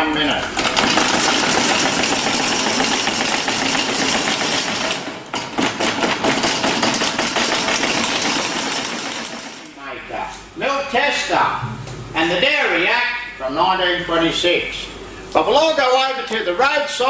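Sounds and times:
hand-cranked butter churn clatter: 0.4s - 9.7s.

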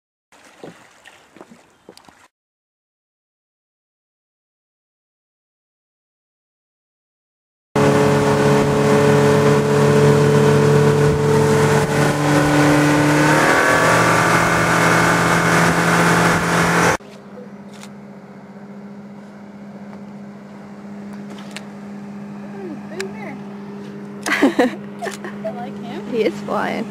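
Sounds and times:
motorboat engine running: 7.8s - 26.9s.

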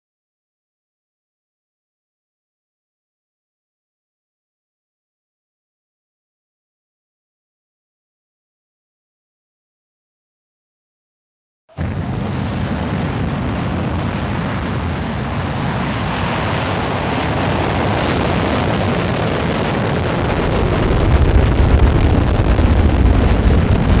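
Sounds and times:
rocket engine roar: 11.7s - 24.0s.

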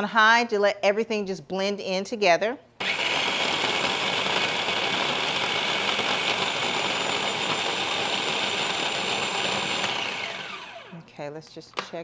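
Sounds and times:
electric blender whining: 2.8s - 11.0s.

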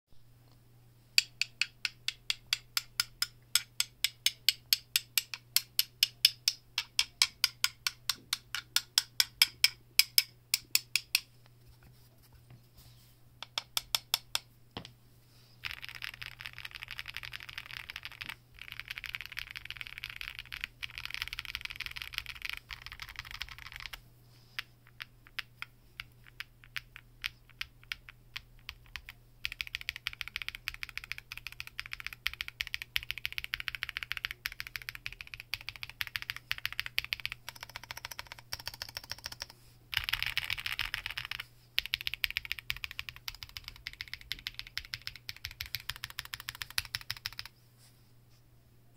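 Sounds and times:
mechanical keyboard typing: 15.6s - 24.0s, 24.9s - 47.5s.

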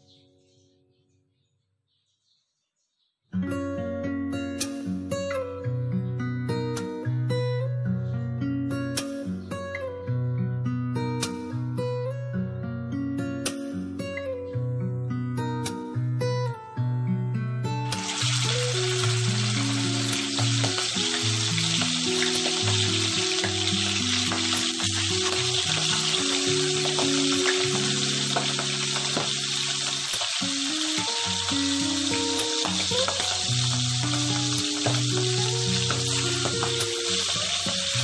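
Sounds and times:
music of held low notes: 3.4s - 38.0s
fish frying in oil: 18.0s - 38.0s.

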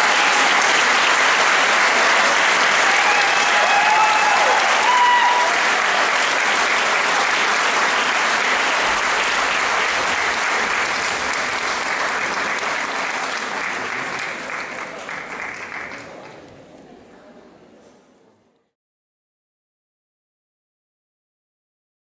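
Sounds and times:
audience applauding: 0.0s - 16.5s.

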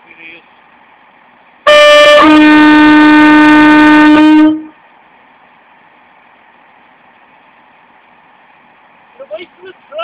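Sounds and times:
train horn: 1.7s - 4.8s.

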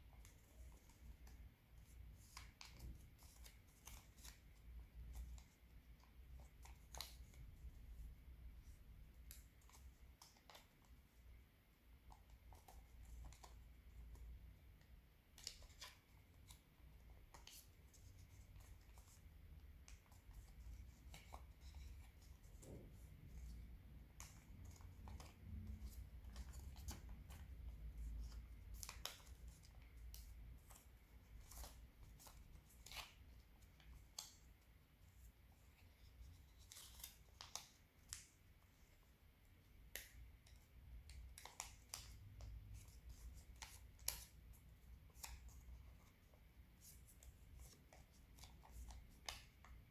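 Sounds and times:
paper crinkling while folded: 0.1s - 7.8s, 19.8s - 39.1s.

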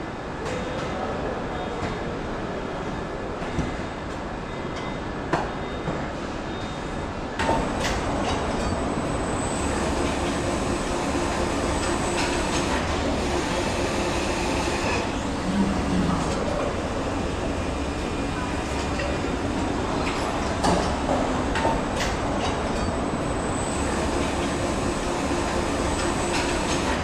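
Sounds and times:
conveyor machinery hum: 0.0s - 27.0s.

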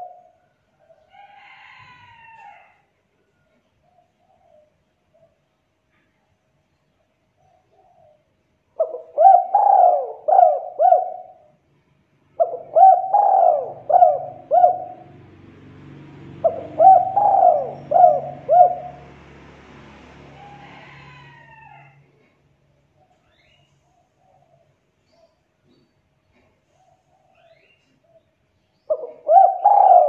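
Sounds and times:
dove cooing: 0.0s - 1.0s, 7.5s - 11.6s, 12.4s - 15.3s, 16.3s - 19.2s, 28.9s - 30.0s.

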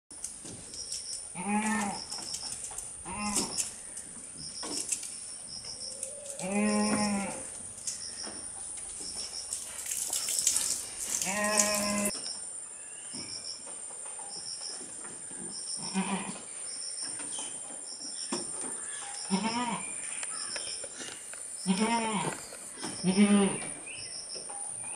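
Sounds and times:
goats bleating: 6.3s - 7.5s, 11.2s - 12.1s.

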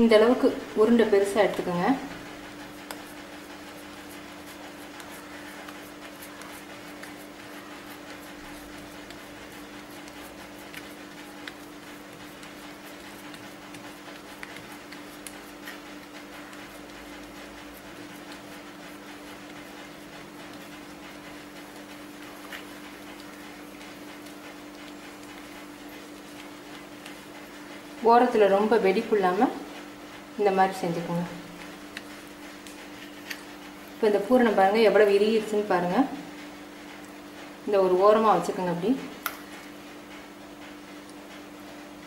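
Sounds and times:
fingers rubbing dough: 0.2s - 29.6s.

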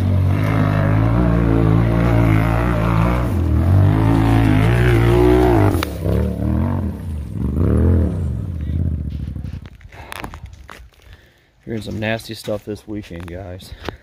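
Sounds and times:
engine revving hard: 0.0s - 9.1s
sharp crack: 3.8s - 6.5s.

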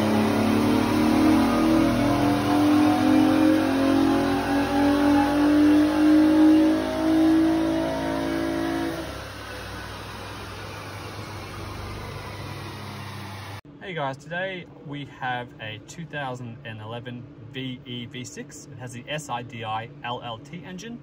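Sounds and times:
car engine running hard on a dyno: 0.0s - 13.6s.

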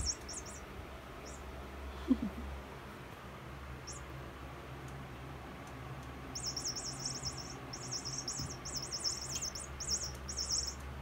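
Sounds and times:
electronic toy mouse chirping: 0.0s - 1.4s, 3.8s - 4.1s, 6.3s - 10.9s.

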